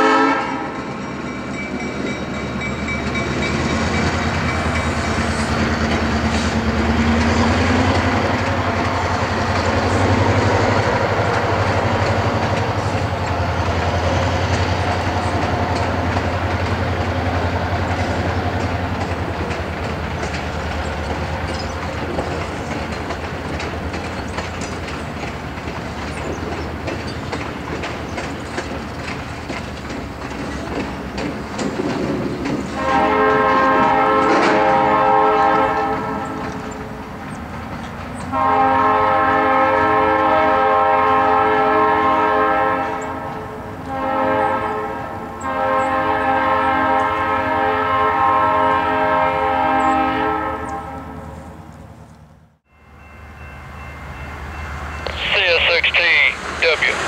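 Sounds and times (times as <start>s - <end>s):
locomotive horn blast: 0.0s - 0.8s, 32.8s - 36.6s, 38.3s - 51.4s
train cars rumbling and clattering: 0.0s - 57.0s.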